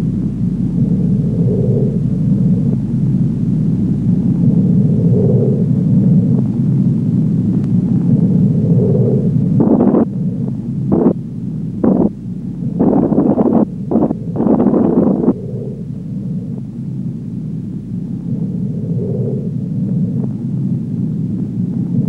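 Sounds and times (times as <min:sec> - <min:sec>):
machinery low rumble: 0:00.0 - 0:22.0
short bursts of noise: 0:09.6 - 0:10.1, 0:10.9 - 0:11.2, 0:11.8 - 0:12.2.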